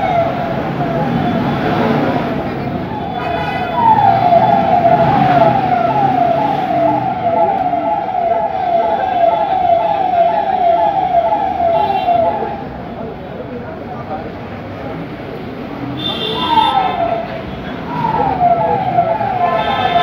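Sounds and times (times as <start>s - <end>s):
vehicle siren falling sweep: 2.9s - 12.8s, 16.4s - 20.0s.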